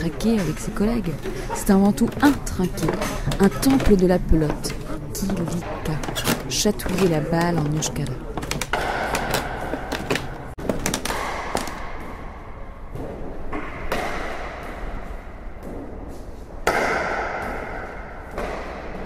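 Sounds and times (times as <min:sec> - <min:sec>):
ball knocking off paddles and walls: 0:02.0 - 0:12.2.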